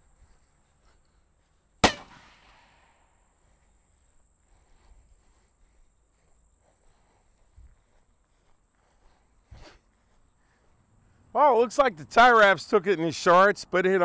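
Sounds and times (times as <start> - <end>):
shotgun blast: 1.8 - 3.1.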